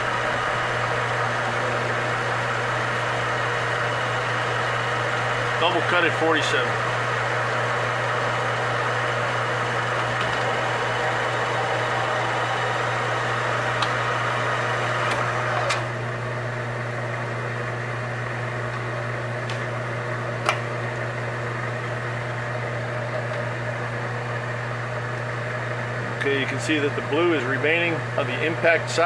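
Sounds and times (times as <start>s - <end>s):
metal lathe running: 0.0s - 29.0s
lathe click: 11.6s - 15.9s, 18.6s - 19.7s, 20.4s - 20.8s.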